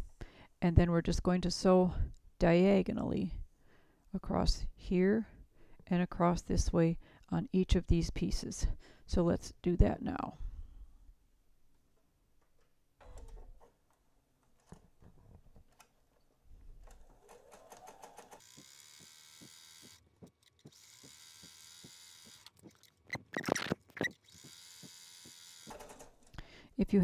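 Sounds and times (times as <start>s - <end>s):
sewing machine motor whining: 17.2s - 26.1s
sewing needle ticking: 18.4s - 25.9s.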